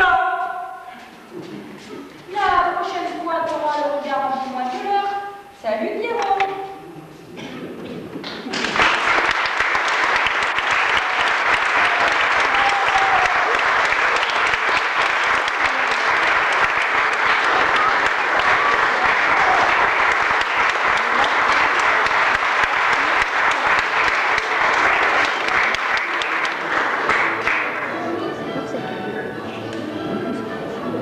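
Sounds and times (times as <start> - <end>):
audience applauding: 8.2 - 28.1.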